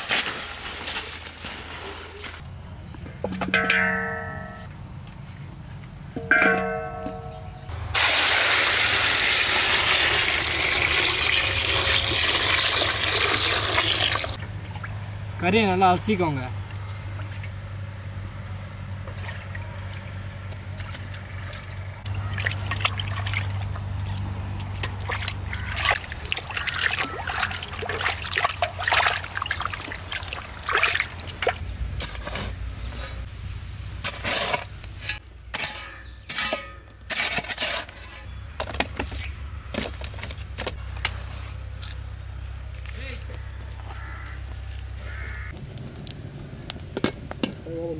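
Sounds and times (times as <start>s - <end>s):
water splashing in a steel pot: 8.0s - 14.9s, 20.7s - 31.6s.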